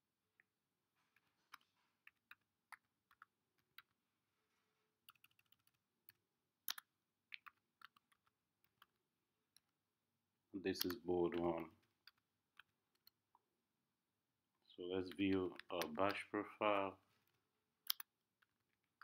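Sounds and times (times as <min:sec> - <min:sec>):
computer keyboard keystrokes: 0:05.1 - 0:05.8.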